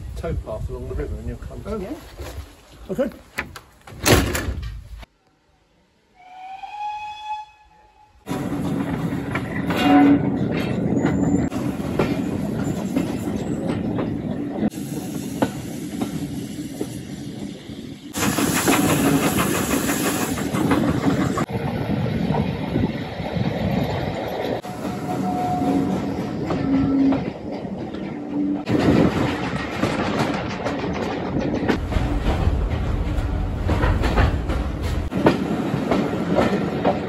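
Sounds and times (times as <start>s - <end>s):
steam locomotive whistle: 6.1s - 8.3s, 9.8s - 10.2s, 24.7s - 27.1s
train carriages rumbling and clattering: 8.3s - 37.0s.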